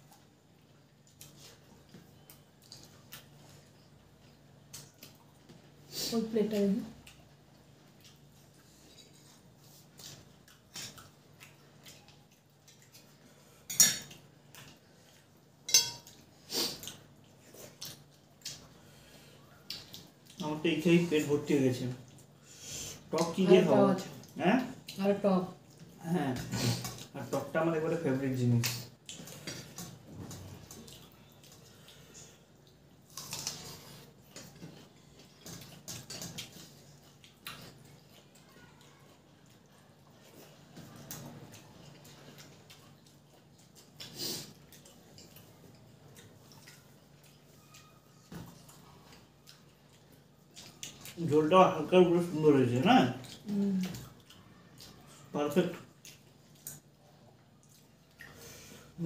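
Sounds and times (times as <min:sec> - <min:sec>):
chewing and lip smacks: 0:00.0 - 0:05.7, 0:07.0 - 0:13.3, 0:14.1 - 0:18.8, 0:19.4 - 0:20.5, 0:28.6 - 0:51.2, 0:53.1 - 0:55.3, 0:55.9 - 0:58.5.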